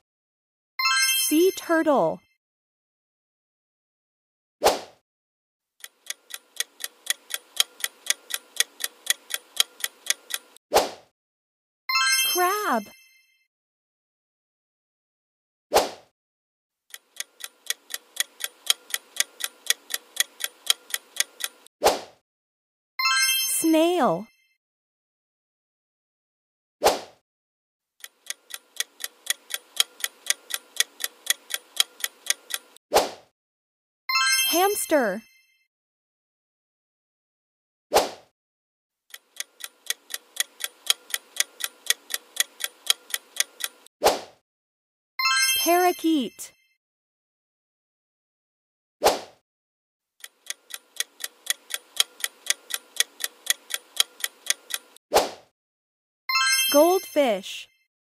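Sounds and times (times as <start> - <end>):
clock ticking countdown timer: 5.8 - 10.6, 16.9 - 21.7, 28.0 - 32.8, 39.1 - 43.9, 50.2 - 55.0.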